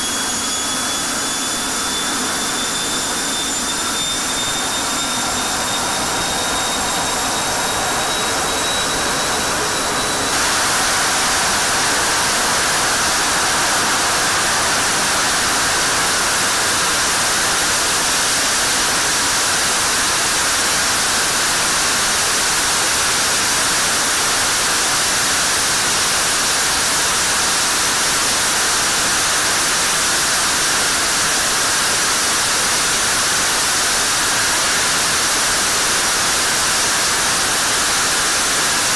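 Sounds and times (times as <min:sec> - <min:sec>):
jet engine roaring: 0:00.0 - 0:22.7
high engine whine: 0:00.0 - 0:26.8.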